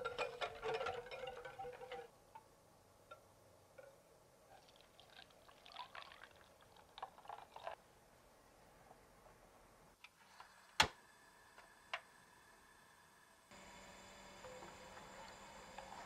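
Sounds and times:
liquid trickling through a strainer: 4.5 - 7.8.

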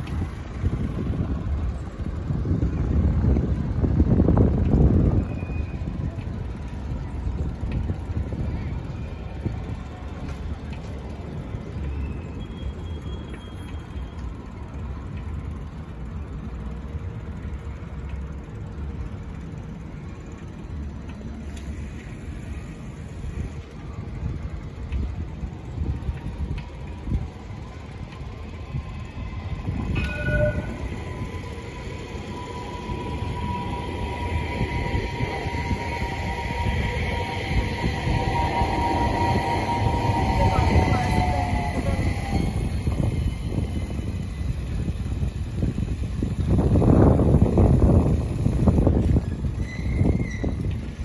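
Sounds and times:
tram running past: 0.0 - 51.0
brief tone: 5.2 - 6.0, 12.0 - 14.2, 29.9 - 37.4
low rumble: 27.0 - 49.0
whine: 28.1 - 45.3.

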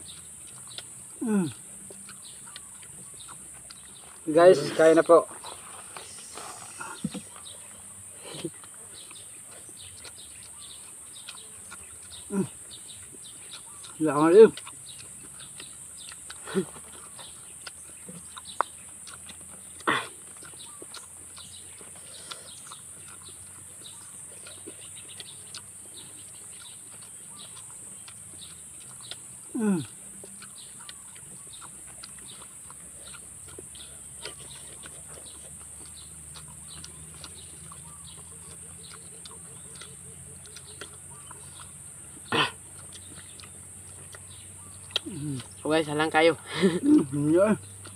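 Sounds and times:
steady high hiss: 4.3 - 7.0.

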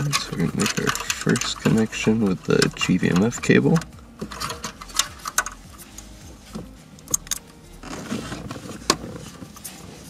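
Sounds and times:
plastic connectors rattling: 0.0 - 5.7
wires rustling: 0.0 - 10.0.

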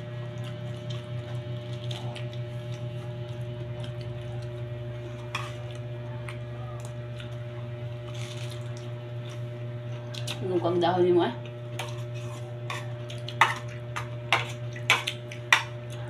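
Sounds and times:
cabbage leaves torn and chewed: 0.3 - 4.6, 8.0 - 10.4.

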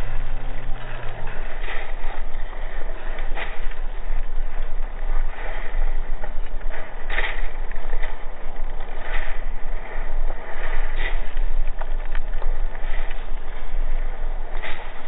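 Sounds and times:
heavy surf rushing: 0.0 - 15.0
low wind rumble: 0.0 - 15.0
waves breaking offshore: 0.0 - 15.0.

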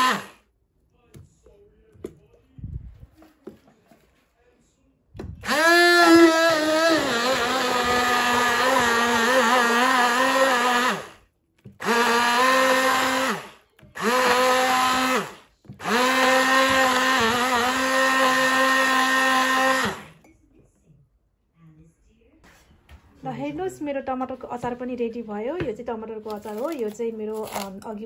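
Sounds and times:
stick blender whining: 0.0 - 0.4, 5.4 - 20.2.

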